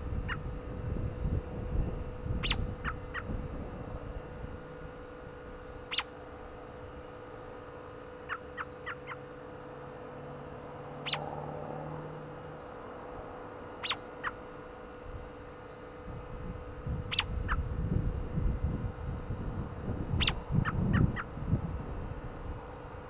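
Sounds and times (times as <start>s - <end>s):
bird chirping: 2.4s - 3.4s, 5.5s - 6.2s, 11.0s - 11.4s, 13.8s - 14.4s, 17.1s - 17.6s, 20.2s - 21.3s.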